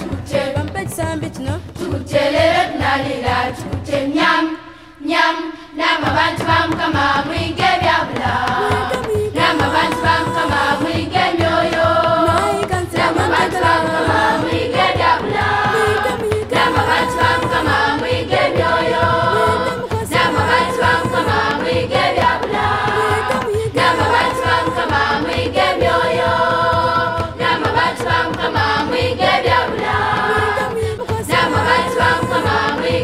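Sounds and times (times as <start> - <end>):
choir singing: 0.0 - 0.6, 1.8 - 33.0
steady drum beat: 0.0 - 4.5, 5.8 - 33.0.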